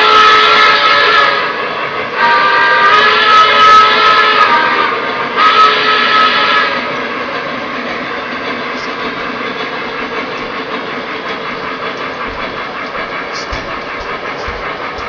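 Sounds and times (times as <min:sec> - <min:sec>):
model train wheels rumbling: 0:00.0 - 0:15.0
low knocks: 0:11.6 - 0:15.0.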